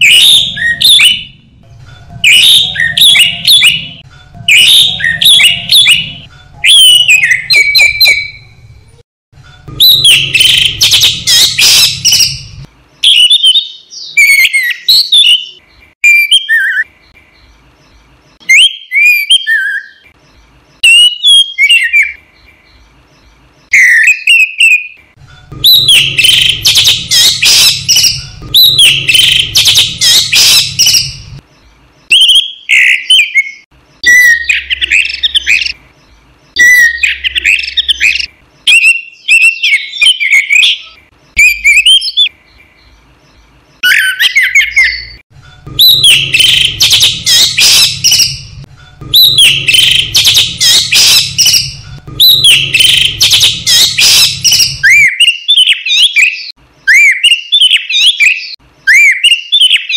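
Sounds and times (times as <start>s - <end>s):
bird singing whistled phrases: 0.0s - 8.6s, 9.8s - 16.9s, 18.4s - 20.1s, 20.8s - 22.2s, 23.7s - 31.4s, 32.1s - 35.8s, 36.6s - 42.4s, 43.8s - 45.2s, 45.8s - 59.9s
bird rapid chattering: 9.5s - 16.9s, 23.7s - 31.4s, 32.1s - 35.8s, 36.5s - 42.3s, 43.8s - 56.5s.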